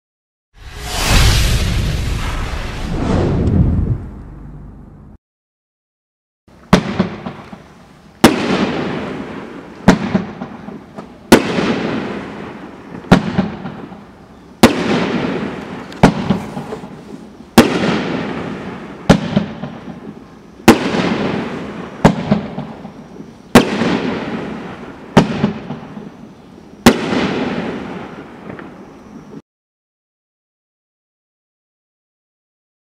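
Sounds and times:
firework bangs: 0:06.6 - 0:14.0, 0:14.6 - 0:26.2, 0:26.8 - 0:29.4.

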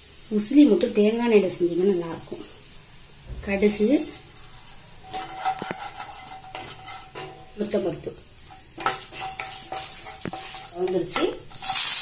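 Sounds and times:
seeds sizzling in hot oil: 0:00.0 - 0:12.0
wooden spatula scraping pan: 0:03.5 - 0:11.9.

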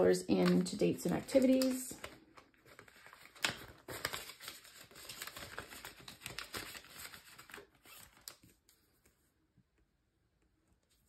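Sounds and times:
banknotes and envelope rustling: 0:00.0 - 0:09.1.

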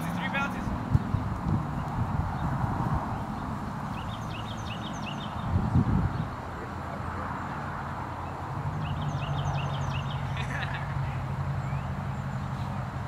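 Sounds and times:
bird chirping: 0:00.0 - 0:06.8, 0:08.0 - 0:11.0.

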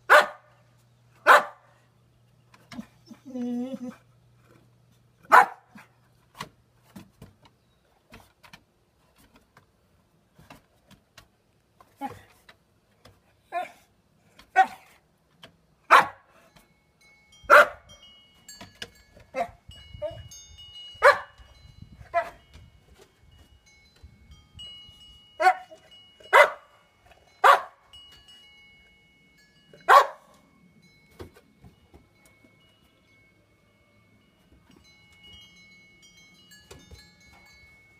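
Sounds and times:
dog barking: 0:00.1 - 0:00.5, 0:01.2 - 0:01.7, 0:05.3 - 0:05.9, 0:15.9 - 0:16.2, 0:17.5 - 0:17.8, 0:21.0 - 0:21.4, 0:26.3 - 0:26.7, 0:27.4 - 0:27.8, 0:29.9 - 0:30.3.

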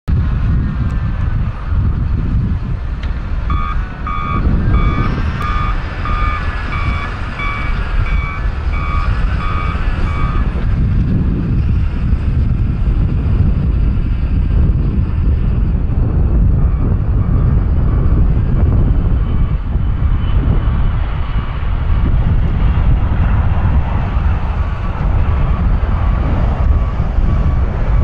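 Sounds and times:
loud low rumble: 0:00.1 - 0:28.0
vehicle reversing alarm beeping: 0:03.5 - 0:10.8, 0:16.4 - 0:20.1, 0:24.7 - 0:28.0.

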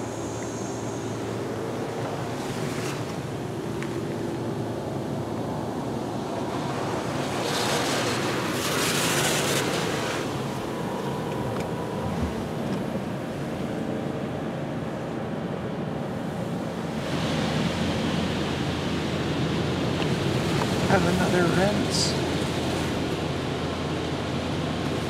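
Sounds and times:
water jets spraying car: 0:00.0 - 0:25.0.

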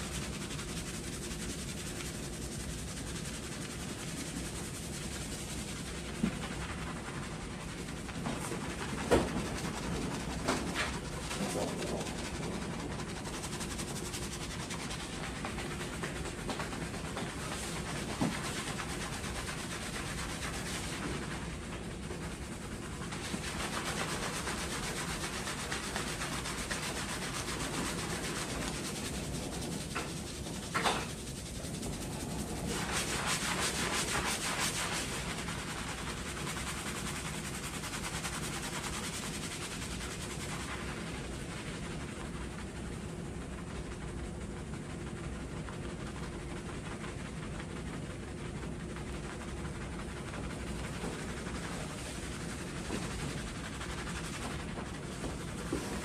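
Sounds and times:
hands scrubbing lather into hair: 0:00.0 - 0:21.4, 0:23.0 - 0:41.1.

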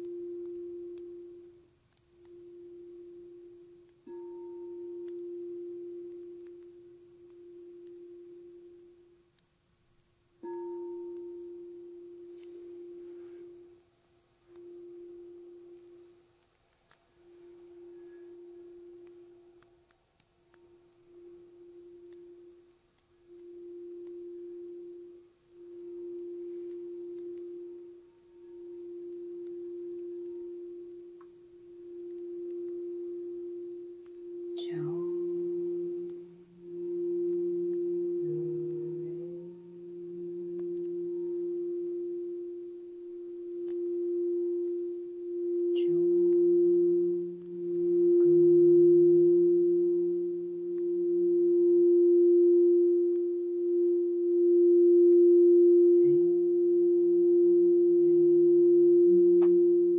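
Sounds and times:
lower singing bowl tone: 0:00.0 - 0:09.2, 0:10.4 - 0:16.4, 0:17.1 - 0:19.9, 0:20.5 - 0:59.9
singing bowl steady tone: 0:00.0 - 0:59.9.

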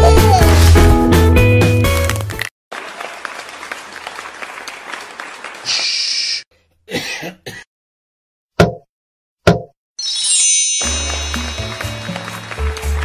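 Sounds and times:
applause: 0:02.4 - 0:06.1, 0:10.8 - 0:13.0
throat clearing: 0:06.9 - 0:07.7.

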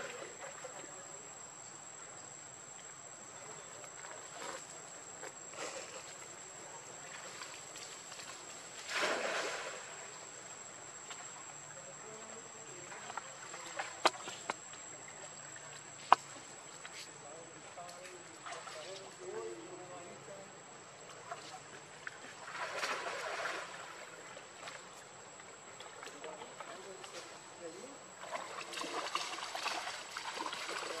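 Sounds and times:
insects droning: 0:00.0 - 0:31.0
water splashing: 0:05.5 - 0:16.9, 0:17.8 - 0:19.5, 0:21.1 - 0:31.0.

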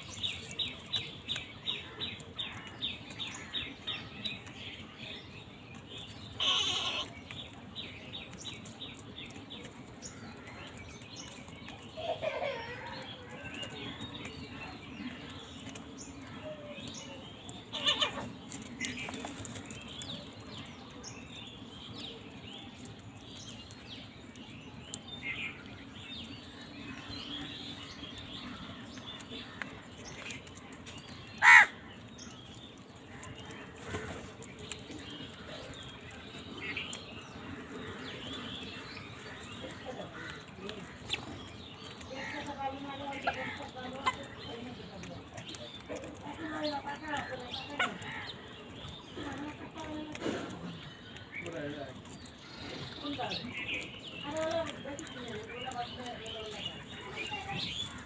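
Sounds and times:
crows cawing: 0:31.4 - 0:31.8, 0:39.4 - 0:41.1.

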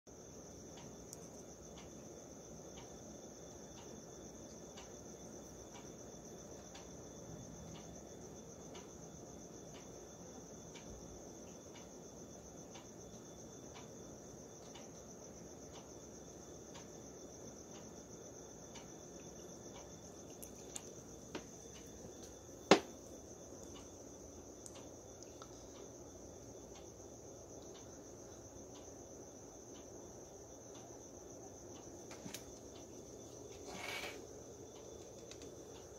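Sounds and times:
crickets chirring: 0:00.1 - 0:35.9
sharp knock: 0:22.7 - 0:22.9
small clicks: 0:33.5 - 0:35.8.

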